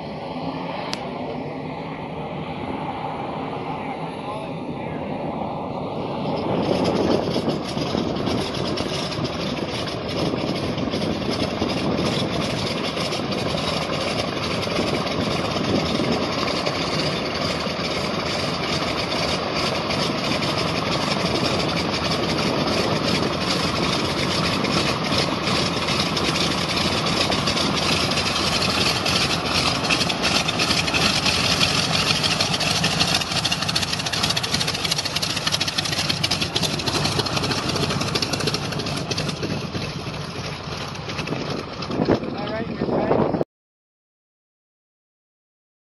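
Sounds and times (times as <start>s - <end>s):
twin radial engines at taxi power: 0.0s - 43.4s.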